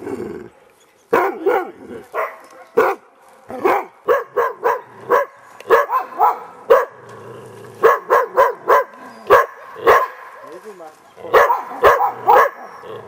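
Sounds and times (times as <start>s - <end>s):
dog barking: 1.1s - 3.0s, 3.6s - 7.0s, 7.8s - 10.4s, 11.3s - 12.9s.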